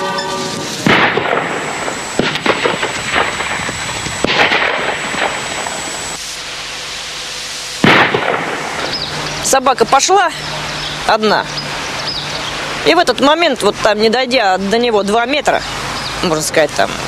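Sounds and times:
rumbling noise: 0:00.0 - 0:17.0
sharp bangs and explosions: 0:00.2 - 0:06.2, 0:07.8 - 0:09.3.

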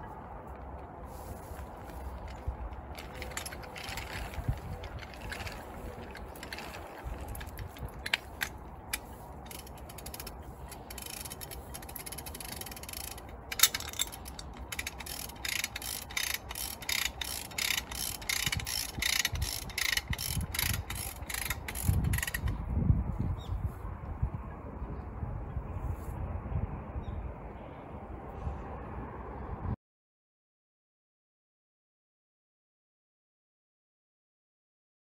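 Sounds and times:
hand ratchet clicking: 0:02.3 - 0:22.5.

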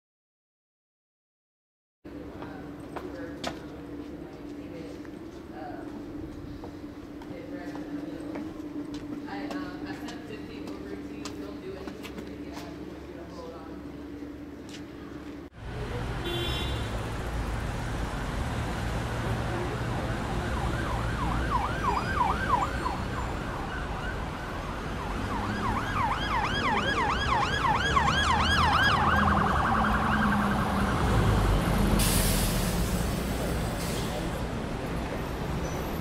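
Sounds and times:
emergency siren yelping: 0:20.0 - 0:31.6
burst of hiss: 0:32.0 - 0:34.1.

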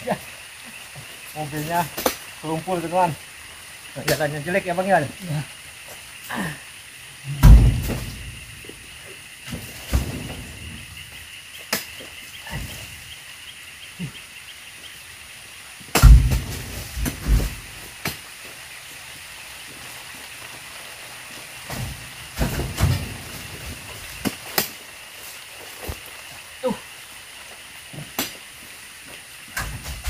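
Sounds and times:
fruit bunches thudding into truck bed: 0:07.4 - 0:08.4, 0:09.4 - 0:10.8, 0:15.9 - 0:17.7, 0:21.6 - 0:24.7.

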